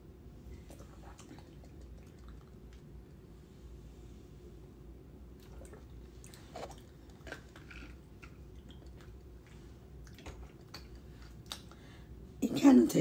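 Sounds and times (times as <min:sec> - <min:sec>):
swallowing and mouth sounds: 0:00.6 - 0:03.0, 0:05.4 - 0:11.8.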